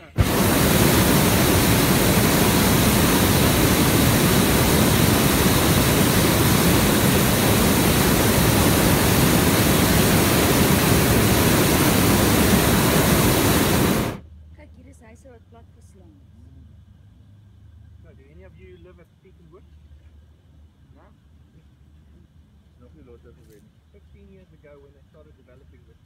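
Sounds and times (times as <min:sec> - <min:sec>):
propane burner roaring: 0:00.0 - 0:14.2.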